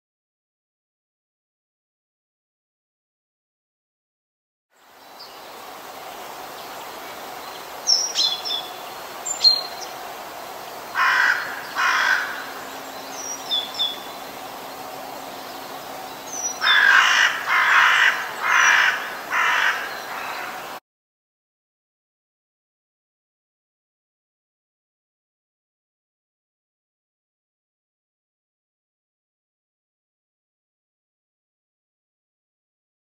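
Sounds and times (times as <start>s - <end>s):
steady outdoor hiss: 4.7s - 20.8s
crows cawing: 10.9s - 12.7s, 16.6s - 20.8s.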